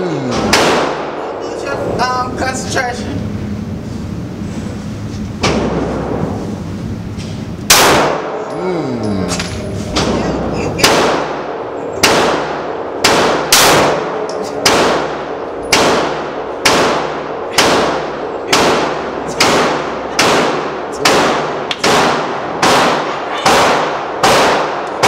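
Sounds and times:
pistol shots reverberating indoors: 0.4 - 1.4, 7.6 - 8.5, 9.9 - 25.0.

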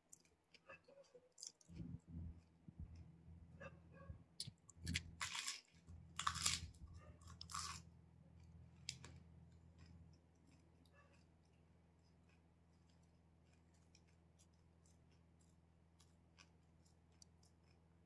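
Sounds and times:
person chewing crunchy food: 0.0 - 18.0
low hum: 1.7 - 7.3.

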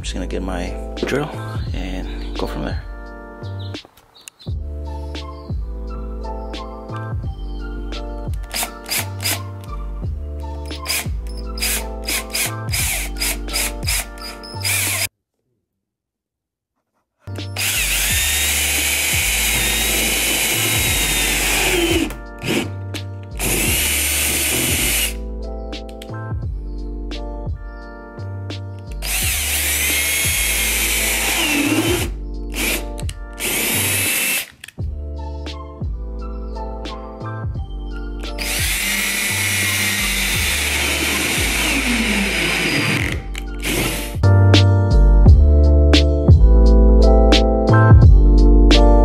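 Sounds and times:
background music: 0.0 - 15.1, 17.3 - 49.0
cordless drill whining: 8.4 - 9.5, 10.8 - 15.1, 17.6 - 22.7, 23.4 - 25.2, 29.0 - 32.8, 33.4 - 34.7, 38.4 - 44.2.

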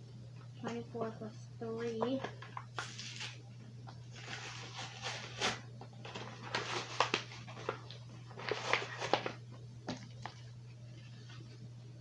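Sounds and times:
packaging clicking and rustling: 4.2 - 10.4.

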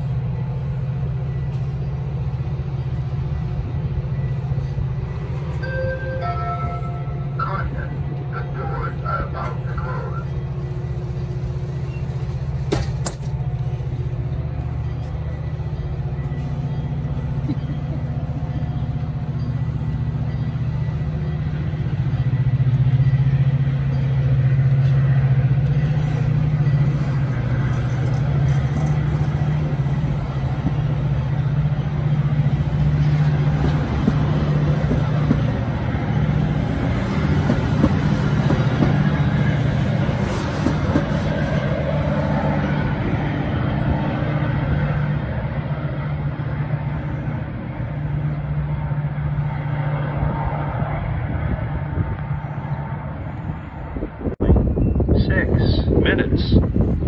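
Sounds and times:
diesel locomotive drone: 0.0 - 57.0
train wheels clacking on rails: 18.9 - 42.6.

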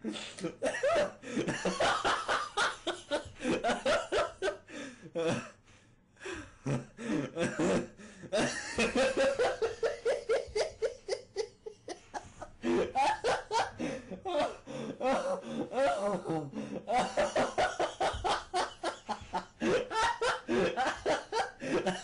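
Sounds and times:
person laughing: 6.7 - 22.0.

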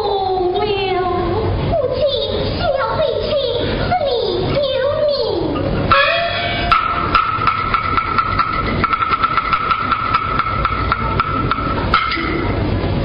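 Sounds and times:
high held note: 5.9 - 12.8
wooden percussion clicks: 6.7 - 12.3.

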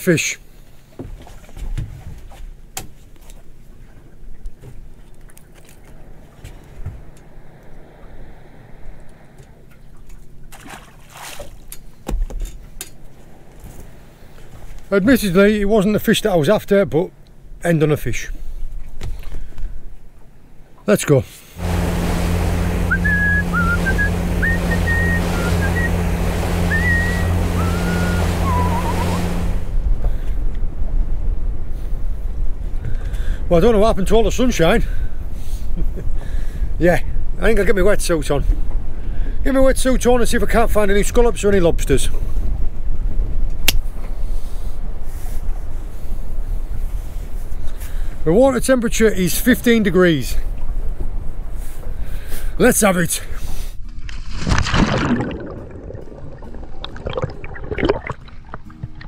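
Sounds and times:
boat low rumble: 0.0 - 59.0
rushing water: 4.1 - 16.1, 20.8 - 30.9, 54.3 - 59.0
gusty wind noise: 5.9 - 10.5, 21.6 - 34.2
thin sliding whistle-like tones: 22.8 - 26.0, 26.6 - 29.4.

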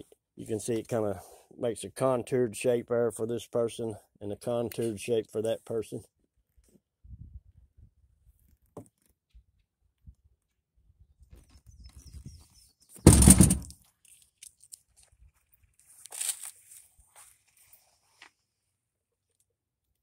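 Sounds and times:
plastic seat thunk: 13.1 - 13.7
faint handling and rustling: 13.9 - 18.6.

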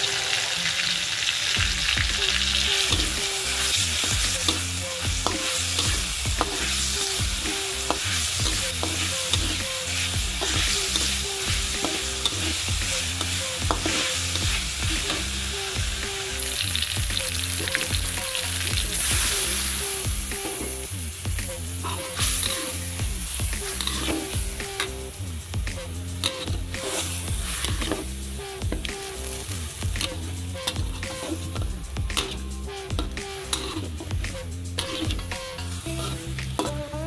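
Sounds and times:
food sizzling in a wok: 0.0 - 37.0
metal spatula scraping a wok: 2.5 - 16.9, 21.7 - 25.1, 26.2 - 36.9.

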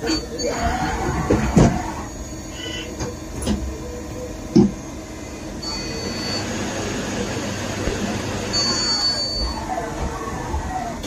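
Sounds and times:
machine whir and hiss: 0.0 - 11.0
thin high tone: 5.6 - 7.0, 8.5 - 9.9.

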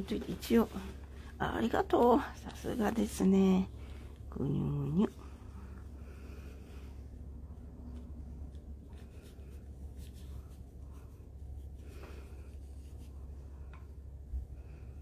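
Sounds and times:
steady low hum: 0.0 - 15.0
brush strokes on paper: 7.5 - 13.8.

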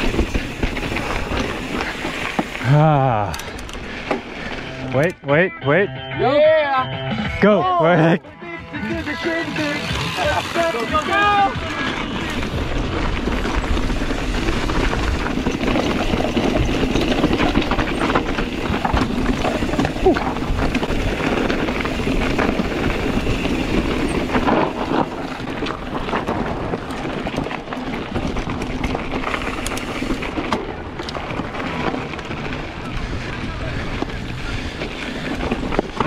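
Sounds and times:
tyres rolling over dirt and stones: 0.0 - 5.0, 8.8 - 36.0
bike chain and frame rattling: 0.0 - 5.1, 8.0 - 36.0
sharp clicks over bumps: 0.0 - 5.2, 9.2 - 36.0
wind rumble on microphone: 12.0 - 36.0.

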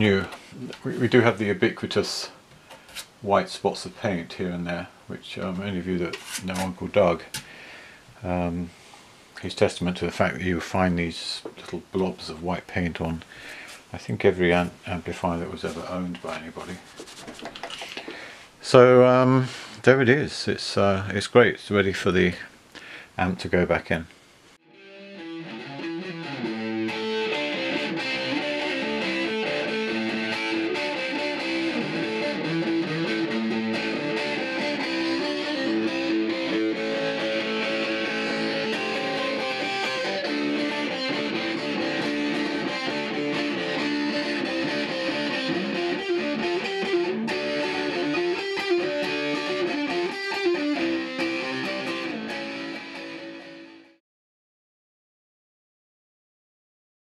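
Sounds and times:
distorted electric guitar music: 24.7 - 54.0.

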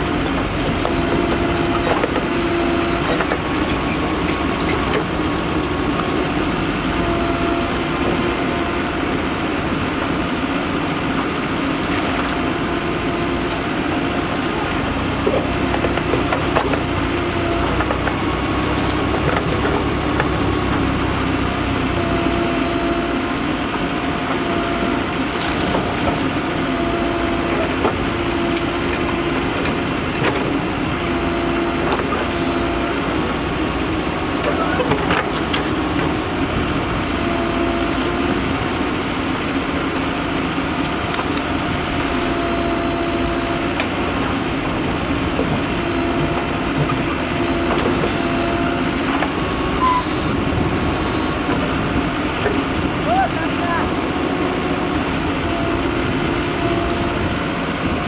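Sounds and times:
diesel engine running: 0.0 - 58.0
hydraulic whine: 0.0 - 58.0
scattered knocks: 15.3 - 16.9.

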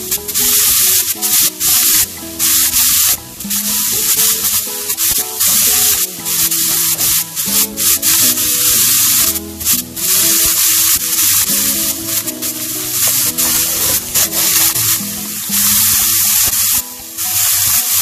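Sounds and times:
background music: 0.0 - 18.0
beef sizzling in oil: 0.1 - 18.0.

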